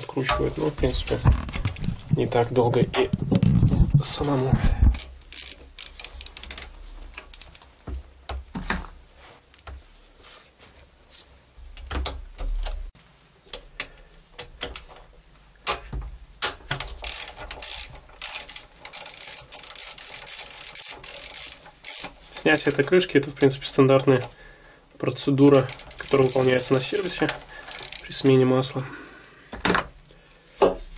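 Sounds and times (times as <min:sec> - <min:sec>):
hand ratchet clicking: 0:04.9 - 0:07.6, 0:15.6 - 0:22.9, 0:25.5 - 0:28.4.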